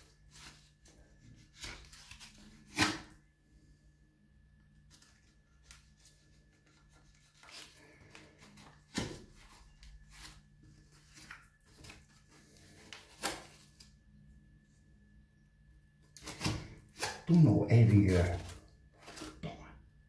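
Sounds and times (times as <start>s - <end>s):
hands rustling cork bark: 4.9s - 13.9s.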